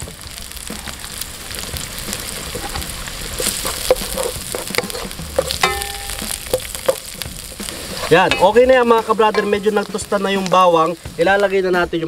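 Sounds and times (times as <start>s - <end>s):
onions and garlic sizzling in oil: 0.0s - 12.0s
wooden spatula scraping a pan: 2.1s - 11.2s.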